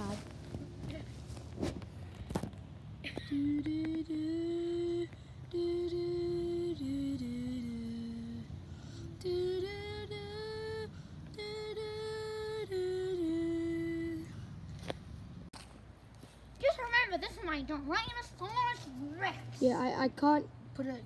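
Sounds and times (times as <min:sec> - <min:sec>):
person humming slow tune: 0:03.1 - 0:14.4.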